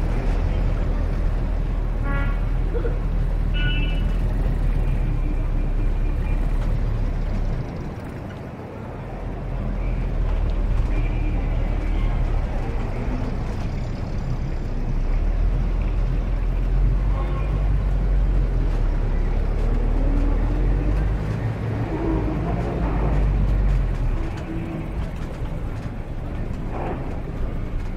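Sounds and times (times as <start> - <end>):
traffic rumble: 0.0 - 27.9.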